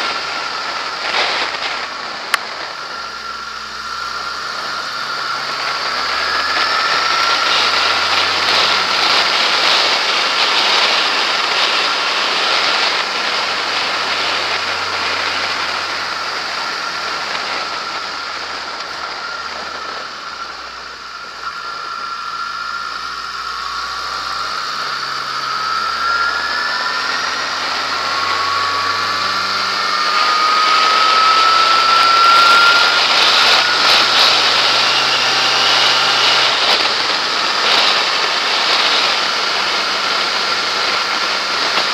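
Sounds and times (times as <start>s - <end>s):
motorcycle engine running: 0.0s - 41.9s
wind rushing over microphone: 0.0s - 41.9s.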